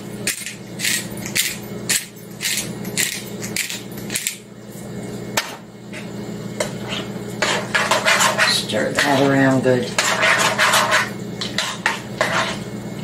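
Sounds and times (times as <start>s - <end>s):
pepper grinder grinding: 0.2s - 4.4s.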